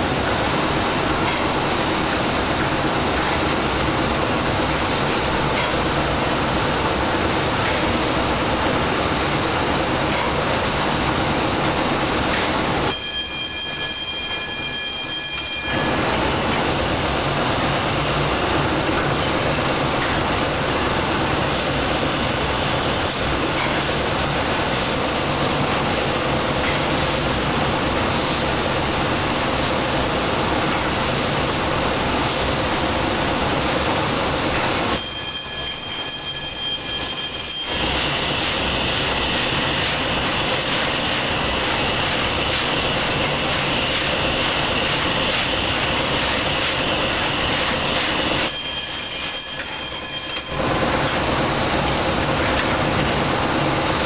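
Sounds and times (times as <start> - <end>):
high ringing tone: 12.9 - 16.0, 35.1 - 37.4, 48.6 - 50.6
steam engine running: 15.7 - 34.9, 37.7 - 49.0.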